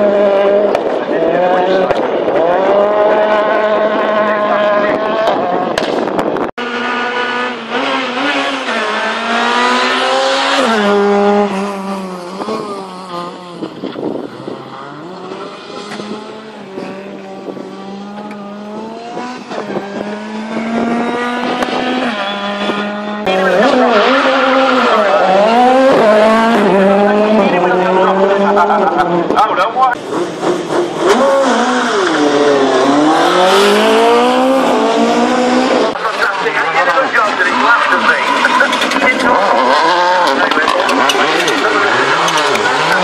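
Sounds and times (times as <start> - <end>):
rally car engines revving: 0.0 - 43.0.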